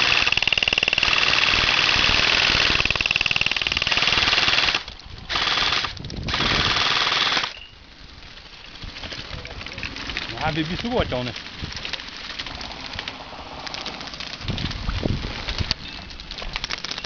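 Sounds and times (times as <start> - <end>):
airsoft rifle firing full auto: 0.0 - 7.6.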